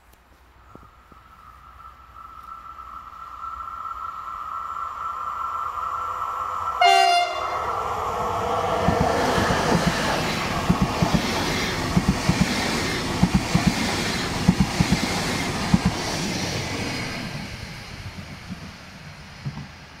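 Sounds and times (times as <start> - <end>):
train horn blast: 6.8 - 7.8
train wheels clicking over rail joints: 8.8 - 20.0.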